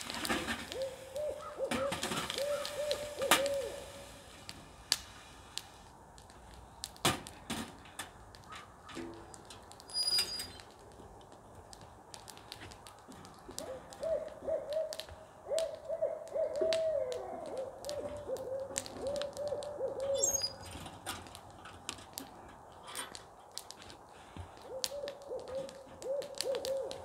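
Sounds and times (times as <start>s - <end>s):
owls hooting: 0.6s - 4.1s, 13.6s - 20.6s, 24.6s - 27.0s.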